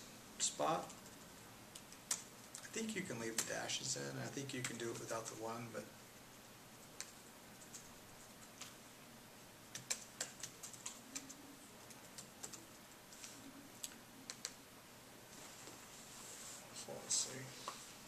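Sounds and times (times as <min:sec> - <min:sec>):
laptop keyboard typing: 0:00.8 - 0:02.7, 0:04.5 - 0:05.4, 0:06.9 - 0:08.8, 0:09.7 - 0:13.4, 0:14.2 - 0:14.6.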